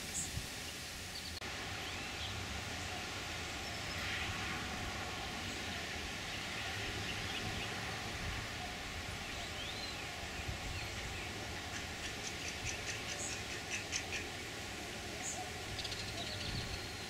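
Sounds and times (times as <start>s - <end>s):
steady low hiss: 0.0s - 17.0s
faint bird calls: 10.8s - 14.4s.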